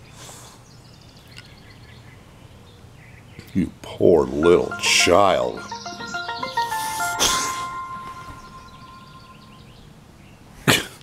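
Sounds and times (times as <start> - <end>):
melody of short clear notes: 4.3 - 9.8.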